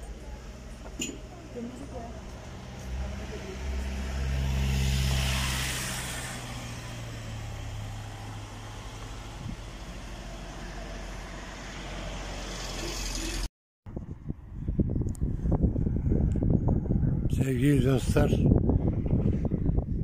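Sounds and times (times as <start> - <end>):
traffic noise: 0.0 - 19.8
car driving past: 2.4 - 13.5.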